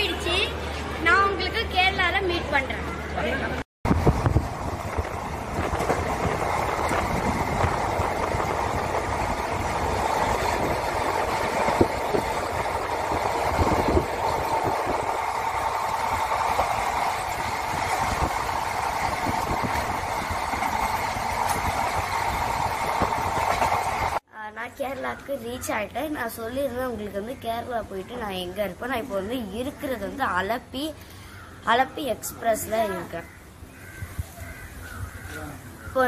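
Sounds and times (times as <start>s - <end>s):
train wheels rumbling on rails: 3.9s - 24.2s.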